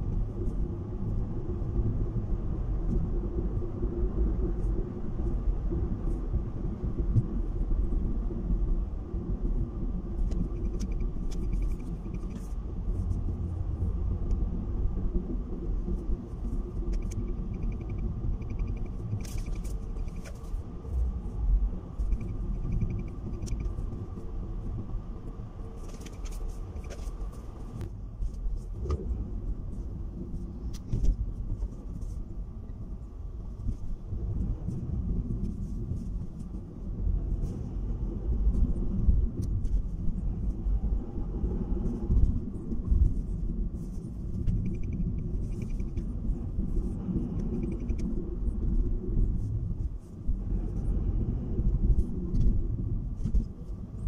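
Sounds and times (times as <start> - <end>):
car engine rumble: 0.0 - 54.0.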